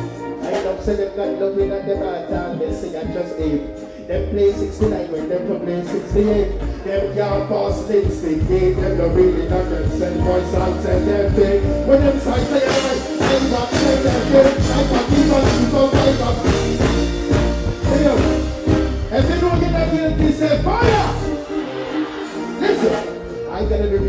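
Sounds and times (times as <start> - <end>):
man singing into a microphone: 0.0 - 17.0
reggae band with heavy bass: 0.0 - 24.0
regular drum beat: 7.0 - 24.0.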